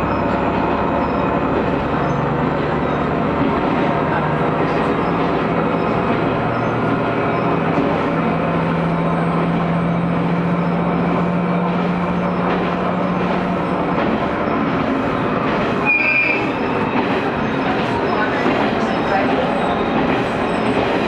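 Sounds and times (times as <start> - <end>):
diesel engine hum: 0.0 - 15.6
wheel and track rumble: 0.0 - 21.0.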